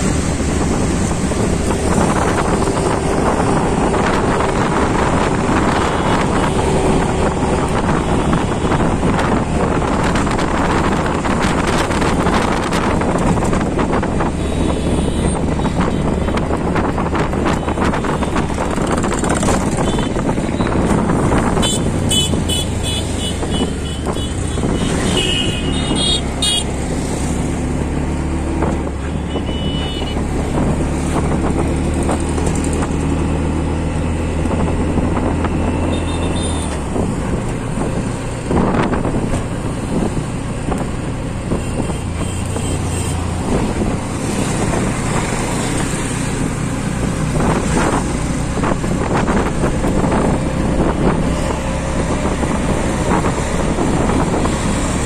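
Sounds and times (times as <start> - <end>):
auto-rickshaw engine running: 0.0 - 55.0
road noise: 0.0 - 55.0
traffic horns beeping: 14.3 - 16.2, 19.7 - 26.7, 29.0 - 30.3, 35.8 - 36.8, 41.6 - 43.3.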